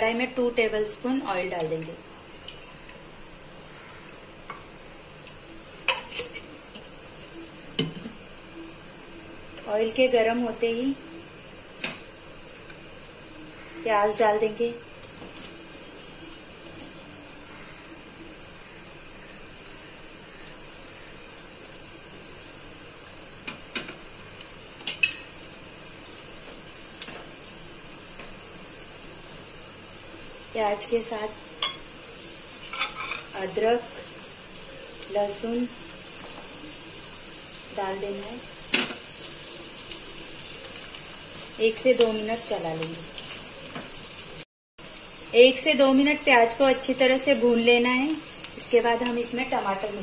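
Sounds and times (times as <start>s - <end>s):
onions sizzling in oil: 0.0s - 50.0s
metal kitchenware clinking: 32.7s - 33.3s.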